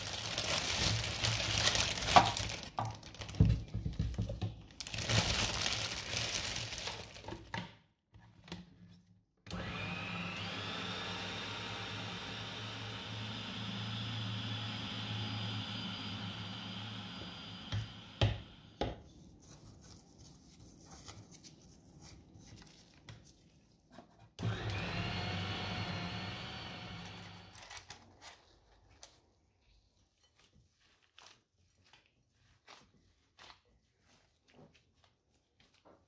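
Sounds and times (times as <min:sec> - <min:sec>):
small appliance motor whining: 0:09.5 - 0:18.8, 0:24.4 - 0:27.9.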